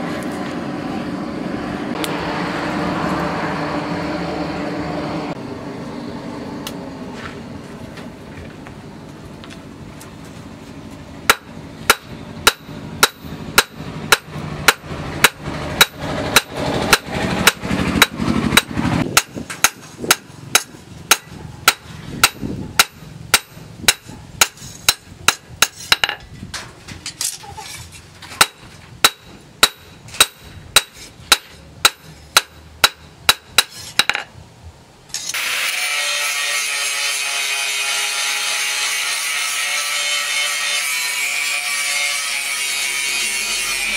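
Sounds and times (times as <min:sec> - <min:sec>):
hammer striking steel on anvil: 0:11.2 - 0:26.2, 0:28.4 - 0:34.3
angle grinder grinding steel: 0:35.1 - 0:43.9.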